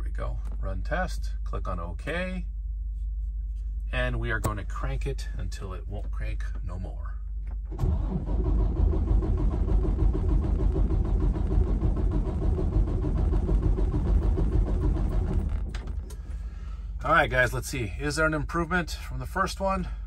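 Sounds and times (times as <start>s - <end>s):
diesel engine cranking on starter: 7.6s - 16.6s.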